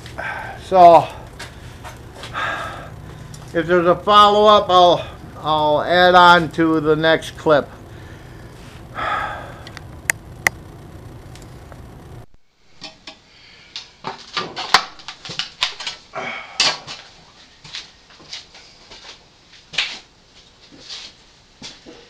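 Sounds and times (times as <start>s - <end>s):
furnace burner roaring: 0.0s - 13.9s.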